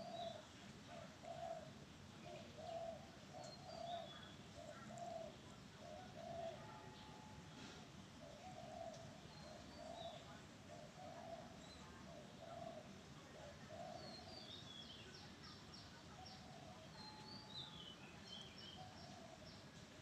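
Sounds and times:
dove cooing: 0.0s - 6.7s, 8.2s - 14.3s.

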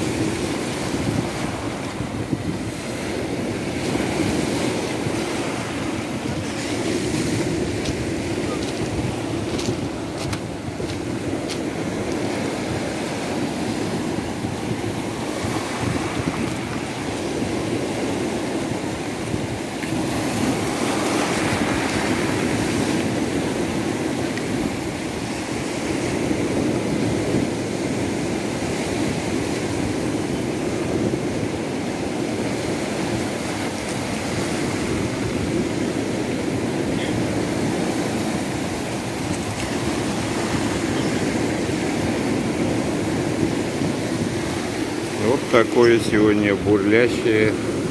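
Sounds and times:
surf breaking on pebbles: 3.8s - 14.0s.

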